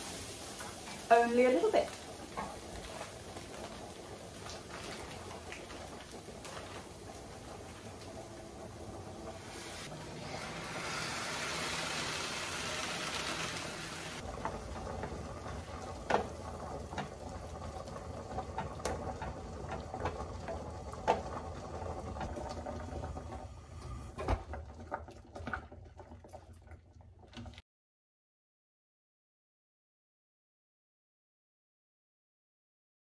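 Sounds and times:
tomato sizzling in pan: 0.0s - 24.3s
wooden spoon stirring: 0.8s - 7.9s.

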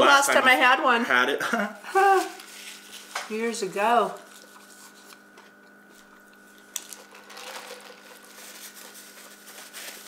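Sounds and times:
paper napkin and wrappers rustling: 2.0s - 10.0s
chewing: 4.4s - 7.1s.

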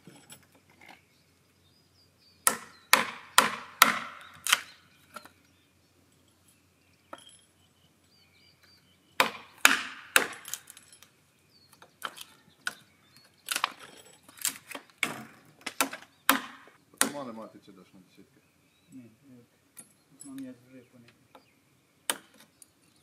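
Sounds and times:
hammer striking chisel into wood: 2.5s - 4.2s, 9.2s - 10.5s, 15.8s - 17.2s.

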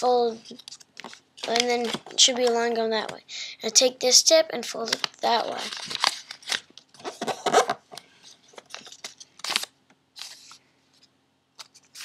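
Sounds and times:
paper rustling and crinkling: 0.4s - 2.6s, 4.8s - 10.6s.

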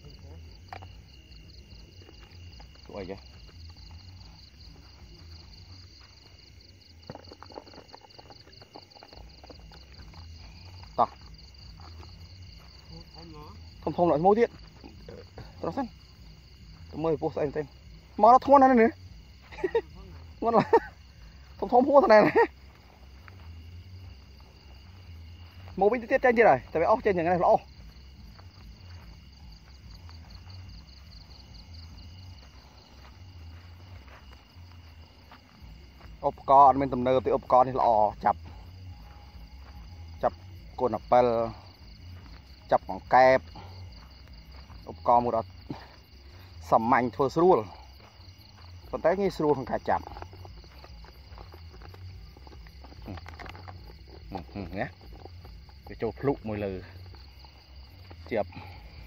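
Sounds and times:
crickets trilling: 0.0s - 59.0s
rustling plants: 47.6s - 59.0s.

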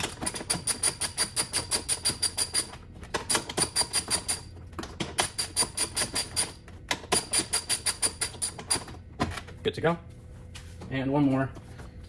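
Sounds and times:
ratchet clicking: 0.3s - 2.7s, 5.2s - 8.8s.

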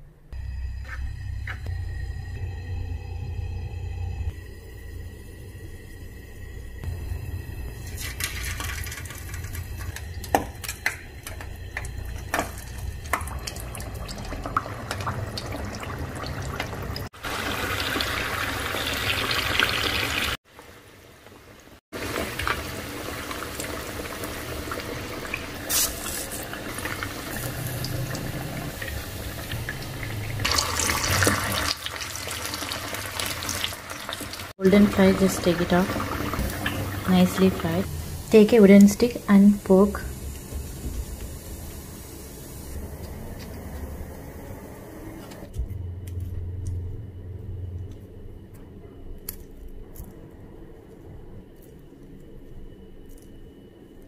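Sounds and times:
potatoes sizzling in hot oil: 16.8s - 20.8s, 22.0s - 42.7s.

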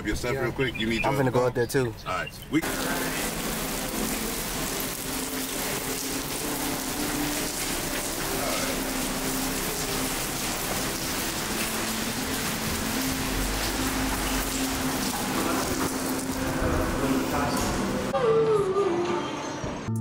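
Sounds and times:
rain splashing on pavement: 2.6s - 18.1s.

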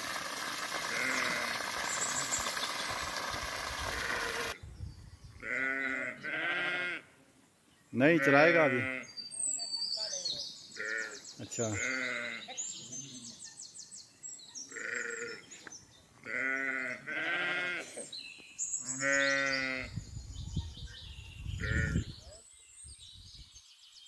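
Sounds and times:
sheep and goats bleating: 0.8s - 2.3s, 3.9s - 4.6s, 5.4s - 7.2s, 8.1s - 9.2s, 10.8s - 12.5s, 14.7s - 15.4s, 16.2s - 18.1s, 18.8s - 20.0s, 21.6s - 22.2s.

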